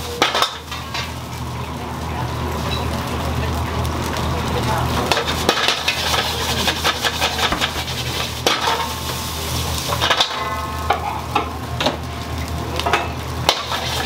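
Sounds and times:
utensils clattering on cookware: 0:00.0 - 0:01.5, 0:05.0 - 0:14.0
food sizzling in a pan: 0:00.0 - 0:14.0.

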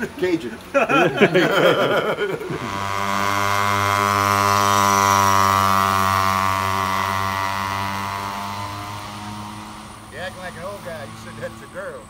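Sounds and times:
engine passing by: 0:00.0 - 0:12.0.

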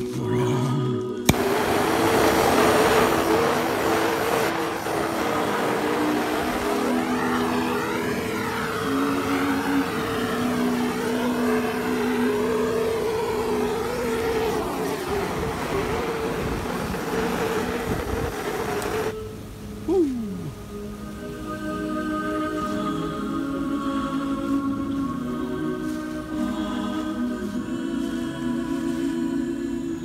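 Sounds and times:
wood burning in flames: 0:01.2 - 0:19.2
blowtorch flame hissing: 0:01.3 - 0:19.2.

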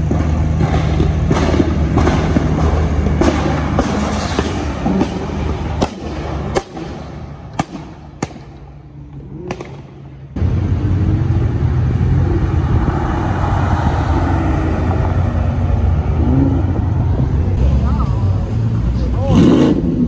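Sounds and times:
exhaust popping and crackling: 0:00.0 - 0:13.4
car engine rumbling: 0:00.0 - 0:20.0.

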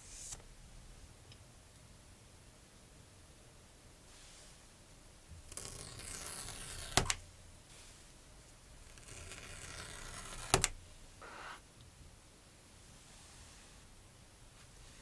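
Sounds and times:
paper tear strip ripping: 0:05.5 - 0:07.2, 0:08.8 - 0:10.8.

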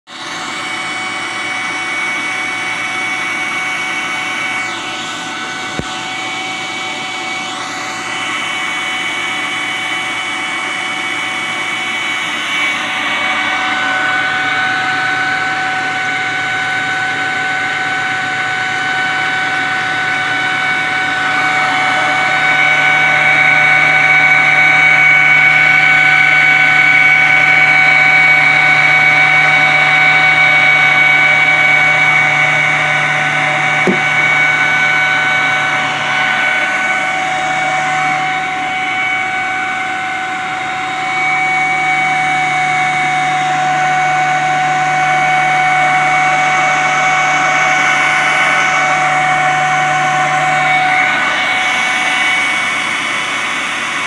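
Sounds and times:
duct fan motor humming: 0:00.2 - 0:53.8.

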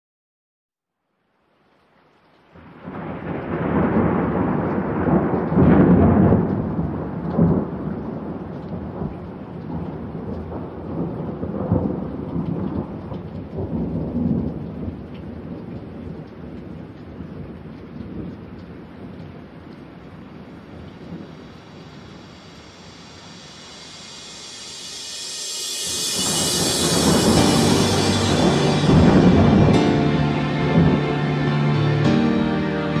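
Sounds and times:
steady rain: 0:01.1 - 0:33.0
rolling thunder: 0:02.8 - 0:15.1, 0:20.4 - 0:24.6, 0:25.8 - 0:32.6.

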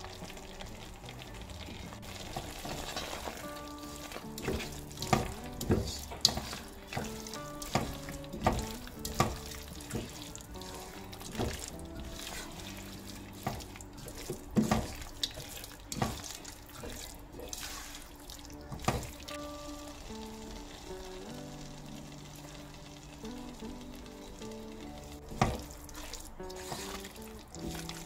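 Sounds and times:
background music with held notes: 0:00.0 - 0:28.0
food sizzling: 0:00.0 - 0:28.0
spatula scraping and knocking pan: 0:02.3 - 0:12.5, 0:13.4 - 0:16.2, 0:26.6 - 0:27.2.

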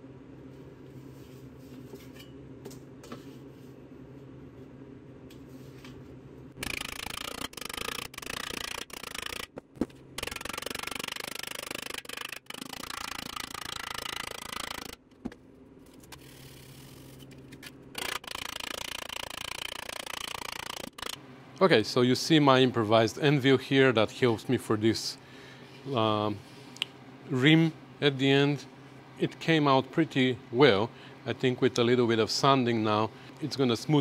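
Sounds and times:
low hum: 0:06.2 - 0:21.5.

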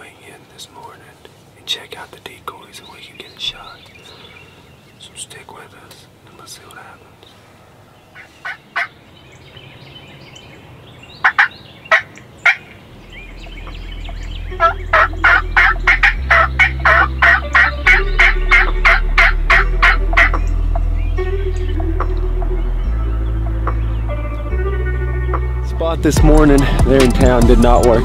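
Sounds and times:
turkey yelping: 0:08.2 - 0:08.9, 0:11.2 - 0:20.5
background music with low bass: 0:13.0 - 0:28.0.

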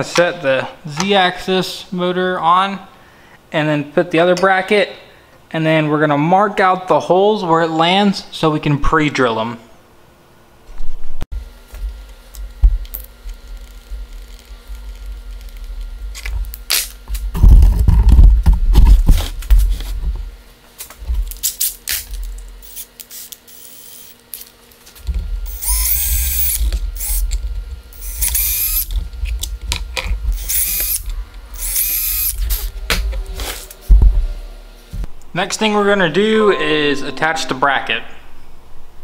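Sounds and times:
cordless drill whining: 0:22.6 - 0:24.2, 0:25.0 - 0:32.8.

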